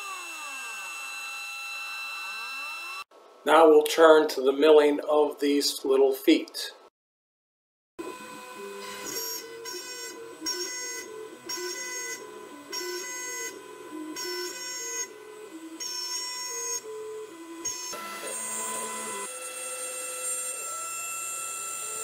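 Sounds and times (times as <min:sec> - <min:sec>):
router whine: 0:00.0 - 0:03.1, 0:08.0 - 0:22.0
stepper motors shifting pitch: 0:00.0 - 0:03.1.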